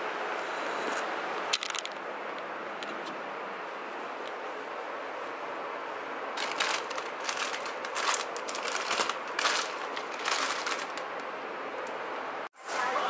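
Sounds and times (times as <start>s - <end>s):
plastic packets crinkling: 6.4s - 11.3s.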